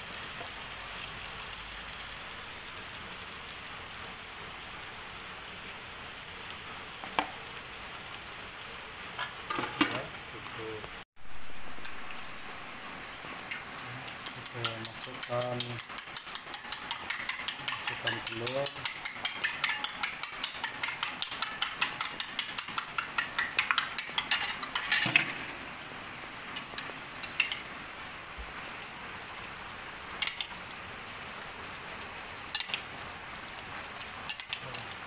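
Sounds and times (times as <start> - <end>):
food sizzling in a wok: 0.0 - 35.0
spoon beating eggs in glass bowl: 14.1 - 25.0.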